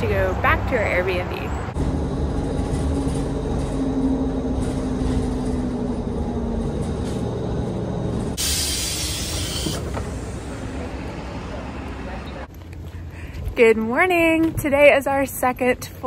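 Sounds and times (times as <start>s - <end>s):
bus engine rumbling: 0.0s - 16.0s
air hissing: 8.2s - 10.6s.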